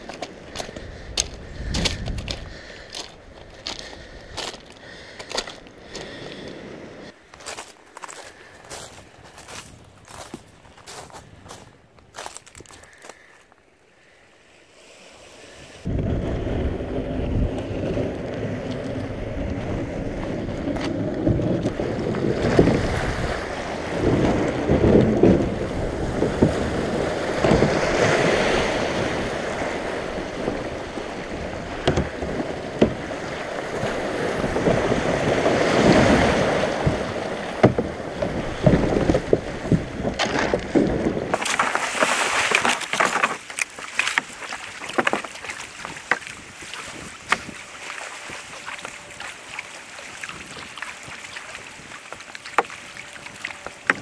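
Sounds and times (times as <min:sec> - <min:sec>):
wind rumbling on microphone: 0:00.0 - 0:13.2, 0:15.4 - 0:54.0
water sloshing around kayak: 0:18.4 - 0:54.0
paddle splashes: 0:19.6 - 0:54.0.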